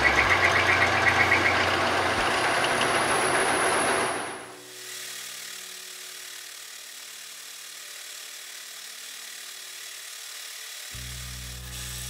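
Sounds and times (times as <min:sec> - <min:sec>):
lathe motor hum: 0:00.0 - 0:12.0
metal cutting hiss: 0:03.1 - 0:12.0.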